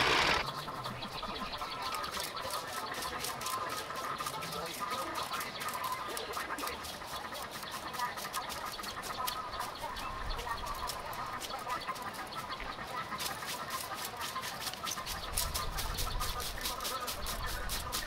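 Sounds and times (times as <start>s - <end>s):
metal rake scratching grass: 0.0s - 0.4s, 13.0s - 18.0s
birds calling: 0.0s - 18.0s.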